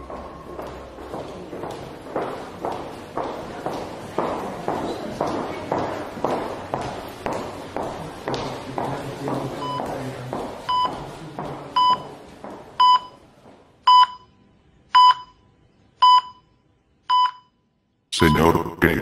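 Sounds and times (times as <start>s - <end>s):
heart monitor beeping: 9.6s - 9.9s, 10.6s - 11.0s, 11.7s - 12.2s, 12.8s - 13.2s, 13.8s - 17.6s.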